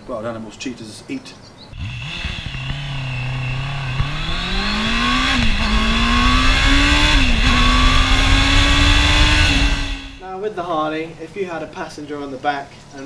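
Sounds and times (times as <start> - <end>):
motorcycle engine accelerating: 1.8 - 10.2.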